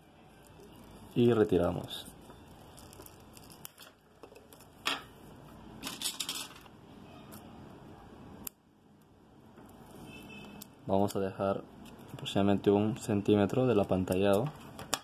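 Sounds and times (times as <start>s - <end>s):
foil shield crinkling: 0.6s - 4.8s.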